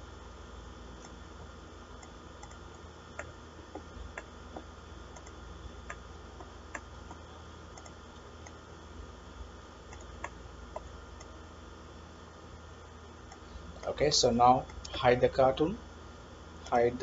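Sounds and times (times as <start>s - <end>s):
steady low hum: 0.0s - 17.0s
computer mouse clicking: 2.0s - 8.6s, 9.9s - 11.3s.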